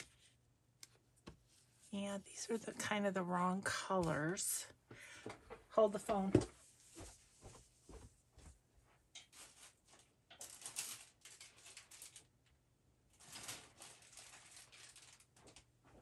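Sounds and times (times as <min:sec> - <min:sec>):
paper rustling and clicking: 0:09.2 - 0:12.6, 0:13.2 - 0:15.7.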